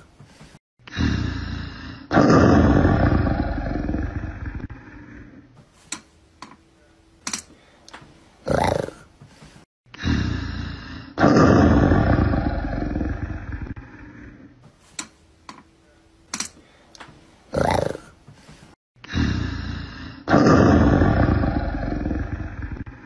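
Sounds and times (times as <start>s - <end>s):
big cat roaring: 0.9s - 5.2s, 8.4s - 9.0s, 10.0s - 14.4s, 17.5s - 18.1s, 19.1s - 23.0s
clicks: 7.2s - 8.1s.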